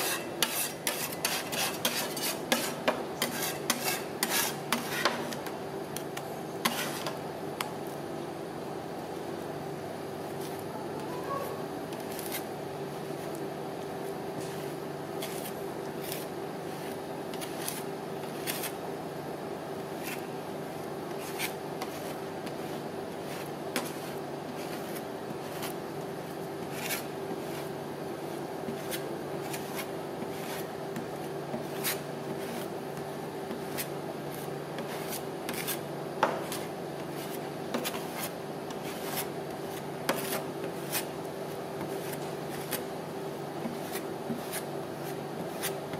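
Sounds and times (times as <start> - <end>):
metal spatula scraping cold plate: 0.0 - 5.4, 6.6 - 7.2
refrigeration unit hum: 0.0 - 45.9.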